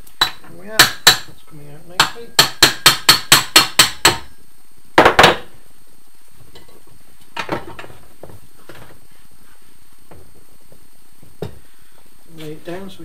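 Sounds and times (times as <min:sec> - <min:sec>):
hammer tapping metal: 0:02.0 - 0:04.3.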